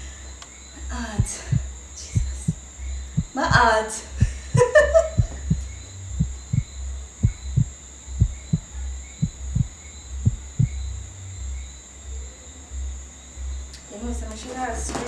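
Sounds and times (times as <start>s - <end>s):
faint high-pitched hum: 0.0s - 15.0s
heartbeat double thump: 1.1s - 11.0s.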